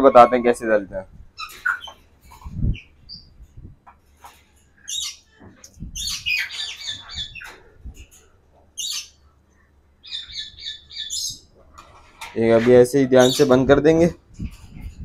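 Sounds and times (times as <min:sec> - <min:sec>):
parrots squawking: 0:01.4 - 0:02.0, 0:06.0 - 0:07.6, 0:08.8 - 0:09.2, 0:10.0 - 0:11.4, 0:13.1 - 0:13.6.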